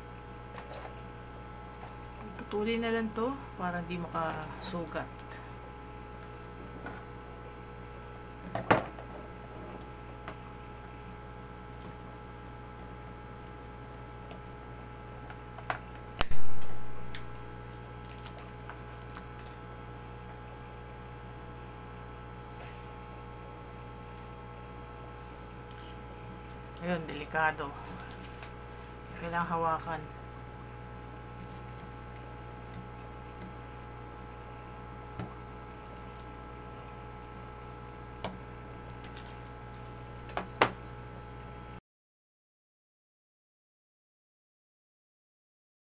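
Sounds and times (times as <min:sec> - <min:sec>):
electrical hum: 0:00.0 - 0:41.8.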